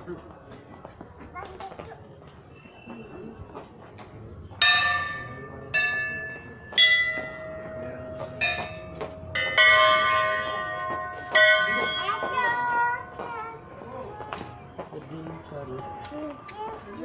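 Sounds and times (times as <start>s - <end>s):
metal bells ringing: 4.5s - 14.6s.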